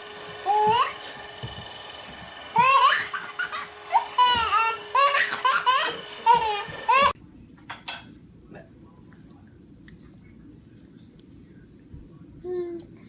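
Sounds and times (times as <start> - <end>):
baby laughing: 2.6 - 7.2.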